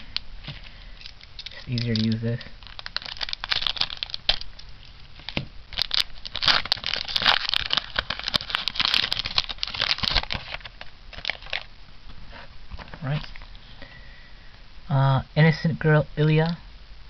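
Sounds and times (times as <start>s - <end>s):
foil wrapper crinkling: 0.0s - 11.7s.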